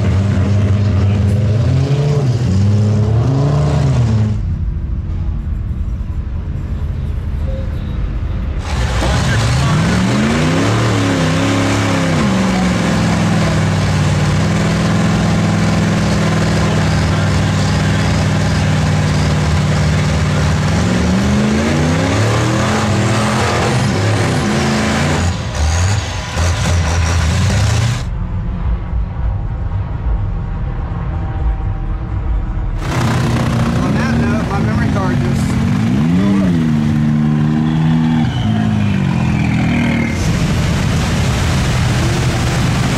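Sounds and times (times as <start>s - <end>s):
diesel truck engine revving: 0.0s - 4.9s, 8.5s - 28.2s, 32.8s - 42.9s
low rumble: 0.0s - 10.5s, 27.9s - 42.9s.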